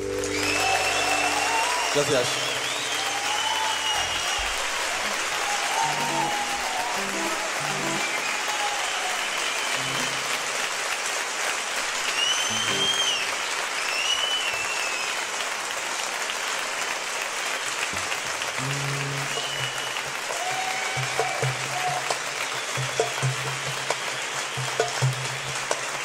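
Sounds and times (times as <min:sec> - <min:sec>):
shrill whistles from crowd: 0:00.0 - 0:10.3, 0:12.0 - 0:15.4, 0:19.0 - 0:26.0
audience applauding and cheering: 0:00.0 - 0:26.0
low plucked notes: 0:18.6 - 0:19.4.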